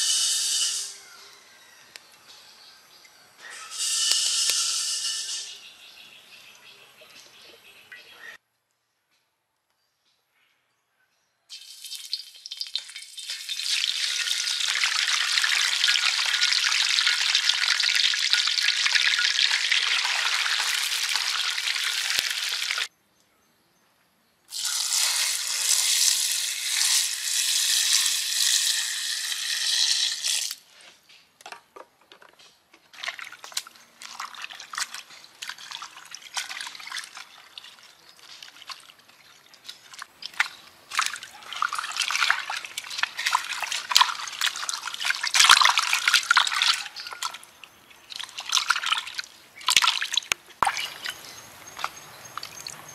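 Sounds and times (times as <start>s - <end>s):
fish sizzling in hot oil: 11.5s - 22.9s, 24.5s - 30.5s
hands washing vegetables in water: 11.5s - 22.9s, 32.8s - 52.9s
water pouring into a bowl: 11.5s - 22.9s, 33.0s - 47.5s.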